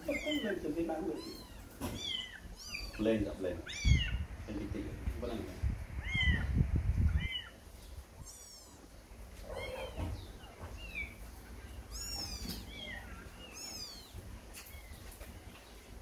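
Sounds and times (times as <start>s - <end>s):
kitten mewing: 0.0s - 4.3s, 6.0s - 7.6s.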